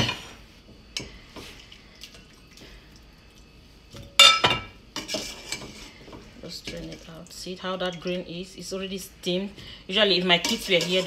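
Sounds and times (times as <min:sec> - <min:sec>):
glass bowl and metal pots clinking: 0:04.0 - 0:05.6.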